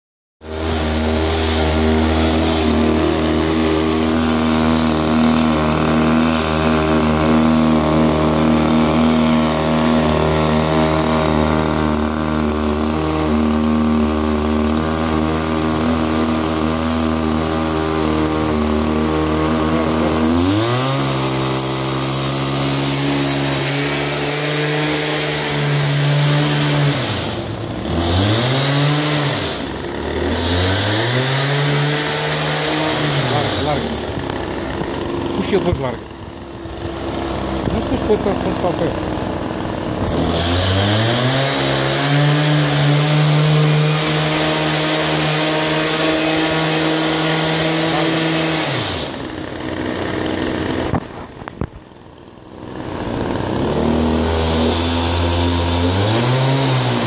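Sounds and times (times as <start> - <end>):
small petrol engine running: 0.4 - 57.0.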